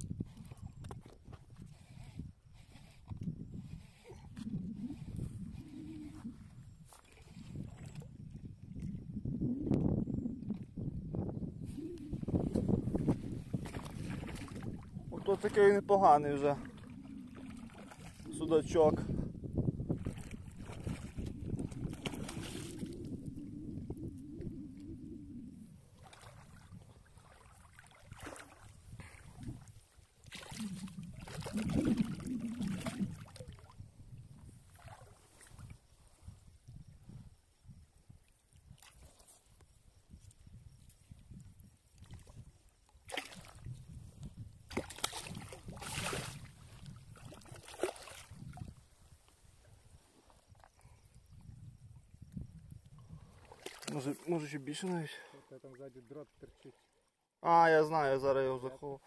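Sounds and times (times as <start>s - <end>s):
fish splashing in shallow water: 11.8s - 18.6s, 19.9s - 33.9s, 34.6s - 36.0s, 41.8s - 44.0s, 44.6s - 49.2s, 52.8s - 55.1s
fish splashing in water: 16.6s - 18.4s, 20.0s - 23.1s, 30.2s - 33.7s, 44.7s - 48.4s, 53.4s - 54.3s.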